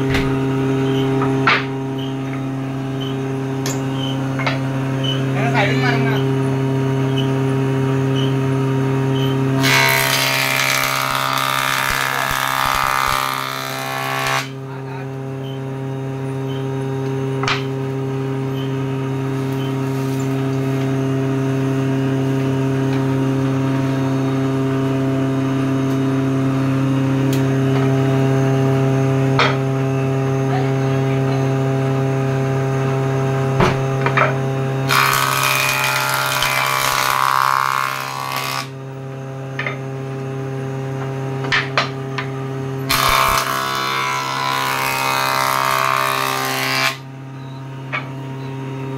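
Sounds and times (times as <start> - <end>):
electric motor hum: 0.0 - 48.9
wood planed on jointer: 9.6 - 15.1, 33.7 - 47.1.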